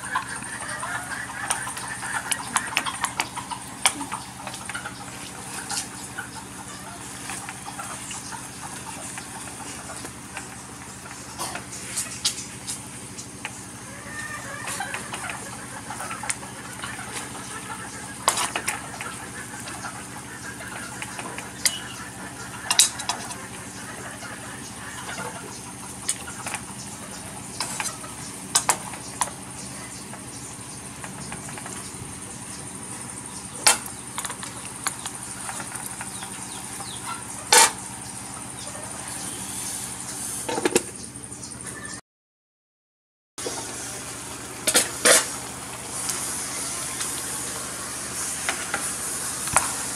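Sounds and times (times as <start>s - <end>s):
background hum: 0.0s - 42.0s, 43.4s - 49.9s.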